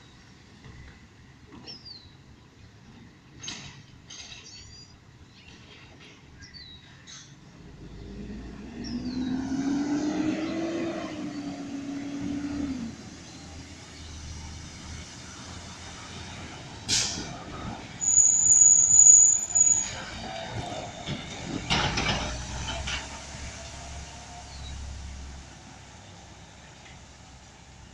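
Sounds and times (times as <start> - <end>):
truck air brake hiss: 16.8 - 19.8
high-pitched brake squeal: 18.0 - 21.0.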